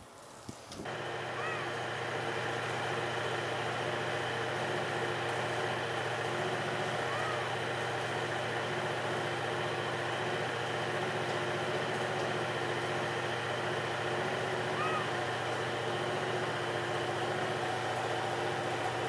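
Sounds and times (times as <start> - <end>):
steady machine hum: 0.8 - 19.0.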